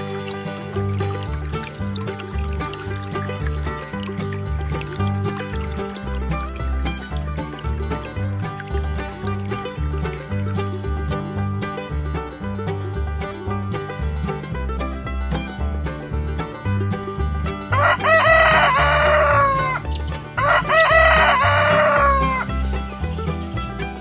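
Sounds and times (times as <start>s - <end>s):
background music: 0.0s - 24.0s
high fast-pulsing chirp: 11.9s - 17.4s
rooster crowing: 17.7s - 19.8s, 20.4s - 22.4s.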